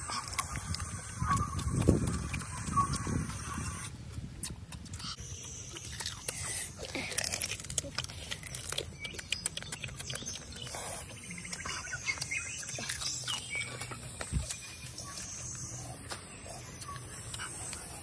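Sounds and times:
birds chirping: 0:00.0 - 0:04.0, 0:08.1 - 0:18.0
crab shells cracking and chewed: 0:00.0 - 0:18.0.

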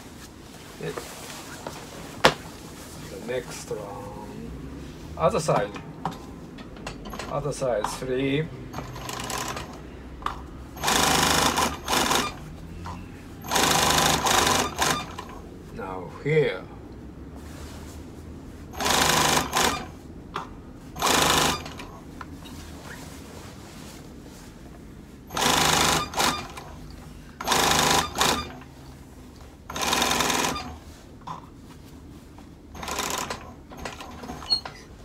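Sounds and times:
sewing machine stitching: 0:07.1 - 0:07.4, 0:08.8 - 0:09.8, 0:10.8 - 0:12.6, 0:13.4 - 0:15.4, 0:18.8 - 0:20.0, 0:21.0 - 0:22.0, 0:25.3 - 0:26.8, 0:27.4 - 0:28.8, 0:29.7 - 0:30.8, 0:32.8 - 0:34.9.

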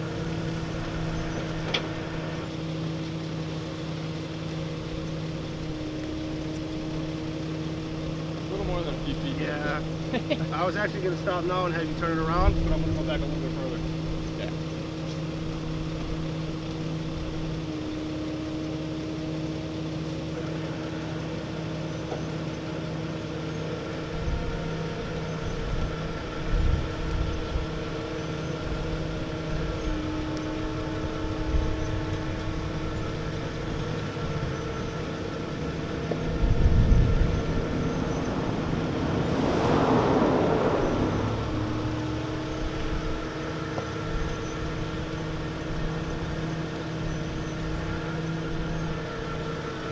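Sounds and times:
vehicle engines idling: 0:00.0 - 0:49.9
loud hissing rush: 0:35.7 - 0:43.1.

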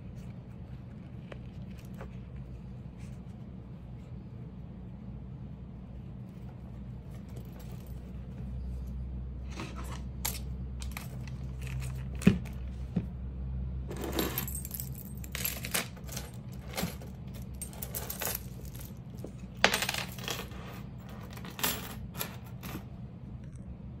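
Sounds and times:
keys jingling: 0:13.9 - 0:22.9.

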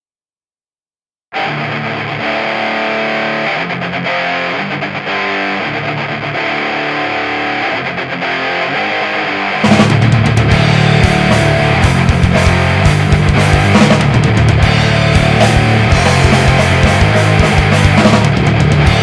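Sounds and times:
distorted electric guitar chords: 0:01.3 - 0:19.0
punk band with drums: 0:08.2 - 0:19.0.

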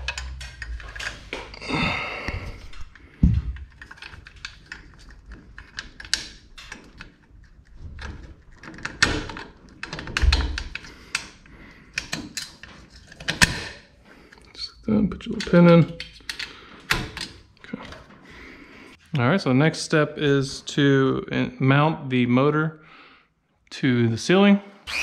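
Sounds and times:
metal clicks and rattles: 0:00.0 - 0:01.6, 0:02.7 - 0:14.4
heavy thumps: 0:02.2 - 0:03.8.

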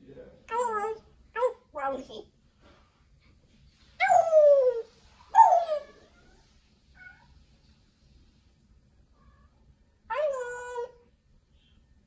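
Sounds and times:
parrot calling: 0:00.5 - 0:02.2, 0:04.0 - 0:07.3, 0:10.1 - 0:11.0.

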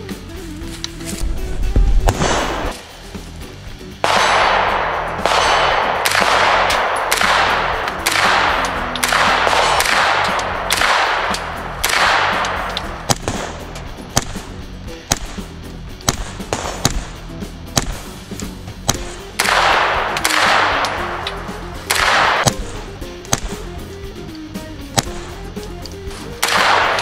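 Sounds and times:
rifle gunshots: 0:02.0 - 0:02.8, 0:04.0 - 0:14.5, 0:15.1 - 0:18.1, 0:18.9 - 0:23.6, 0:26.3 - 0:27.0.

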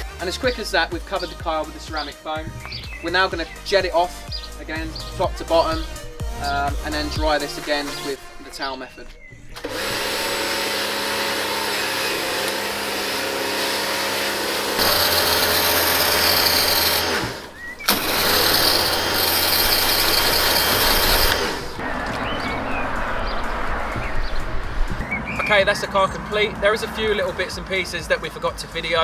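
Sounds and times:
pressure washer spraying water: 0:09.6 - 0:21.8.

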